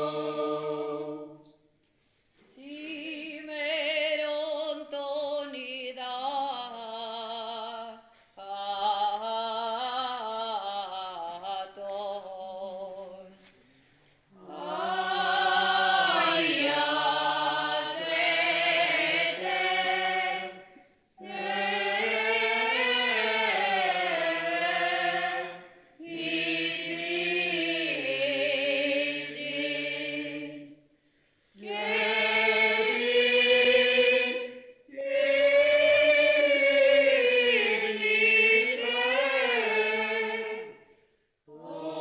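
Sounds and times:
group of voices chanting unaccompanied: 0:14.3 - 0:30.6, 0:41.5 - 0:42.0.

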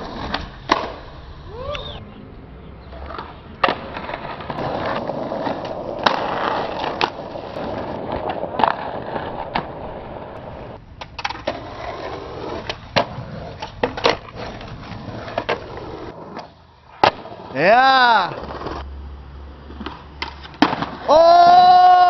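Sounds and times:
skateboard wheels rolling on concrete: 0:00.0 - 0:22.0
skateboard clacks: 0:02.9 - 0:17.5, 0:19.6 - 0:21.7.

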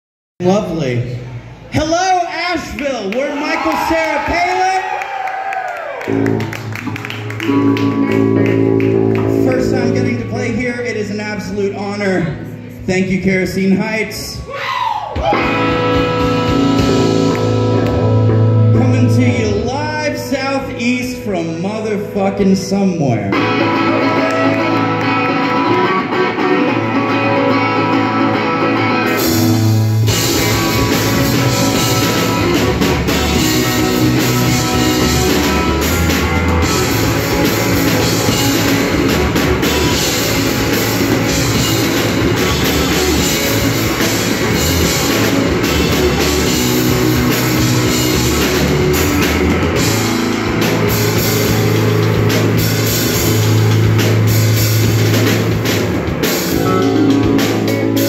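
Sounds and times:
electric guitars: 0:05.2 - 0:11.2, 0:15.1 - 0:20.8, 0:23.3 - 0:58.0
drums and cymbals: 0:15.1 - 0:19.4, 0:29.1 - 0:58.0.

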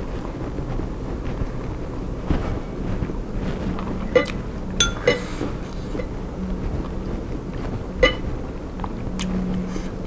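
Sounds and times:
faint steady hum: 0:00.0 - 0:10.0
fork clinking on glass bowl: 0:04.8 - 0:05.2.

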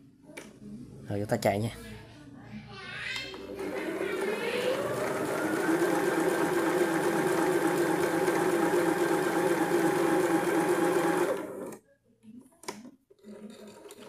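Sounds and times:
sewing machine running: 0:03.4 - 0:11.8.

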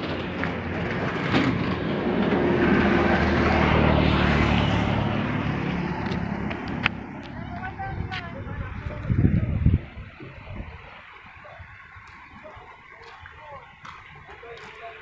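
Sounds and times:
motorboat engine humming: 0:00.0 - 0:15.0
wind and water rushing: 0:00.0 - 0:15.0.

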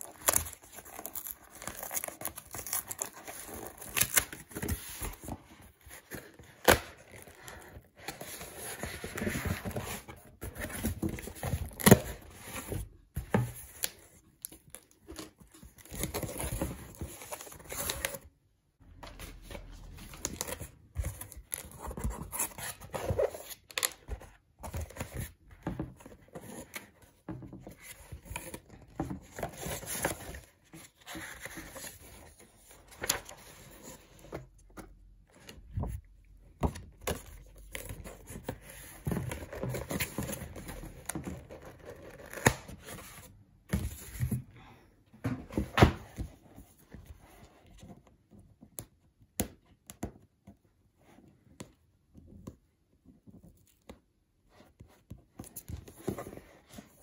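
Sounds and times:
cardboard tearing and rustling: 0:00.0 - 0:12.8.

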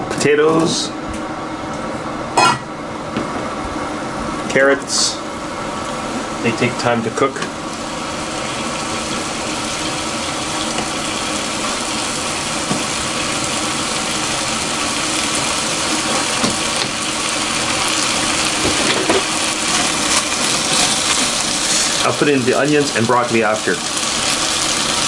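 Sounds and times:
vegetables sizzling in oil: 0:05.4 - 0:25.0.

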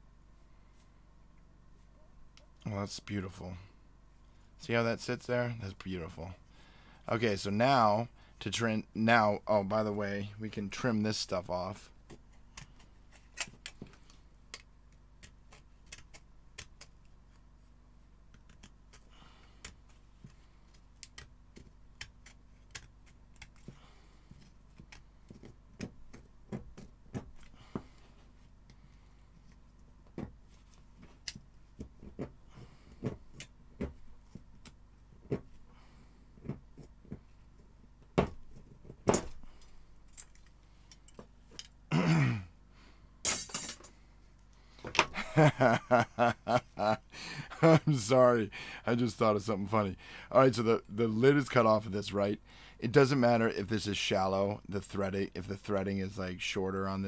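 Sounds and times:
small clicks taps and scrapes: 0:12.0 - 0:17.5, 0:18.3 - 0:27.5.

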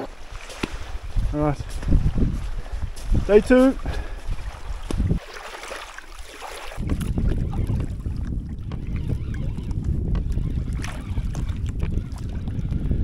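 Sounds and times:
wind buffeting microphone: 0:00.0 - 0:05.4, 0:06.1 - 0:13.0
waves lapping on shore: 0:00.0 - 0:08.1.

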